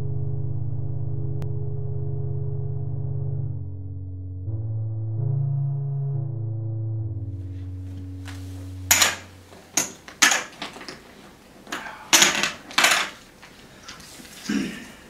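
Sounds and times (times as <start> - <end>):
low sustained music note: 0.0 - 9.6
poker chips clacking: 8.9 - 9.2, 11.7 - 13.3.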